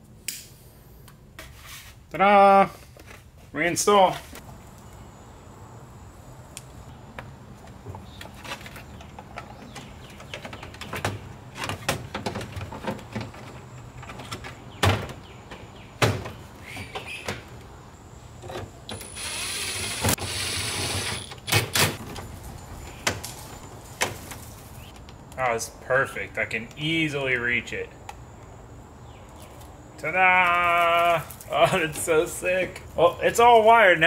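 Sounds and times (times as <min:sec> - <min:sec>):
rustling scrape: 0:01.4 - 0:02.0.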